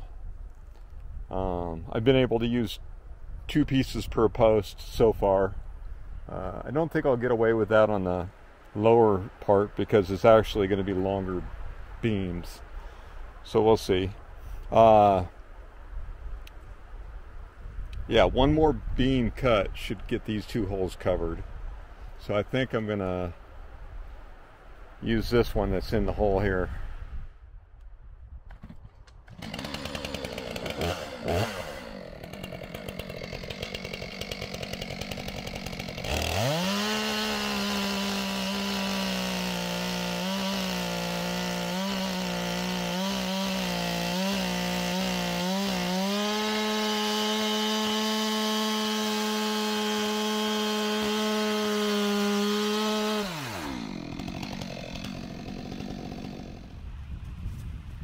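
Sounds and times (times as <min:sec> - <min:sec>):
chainsaw cutting through log: 0:28.5 - 0:56.9.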